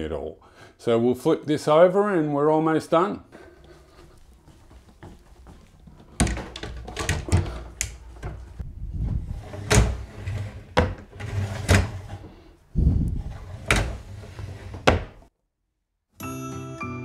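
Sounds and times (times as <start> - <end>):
drawer rumbling on roller runners: 5.8 - 15.3.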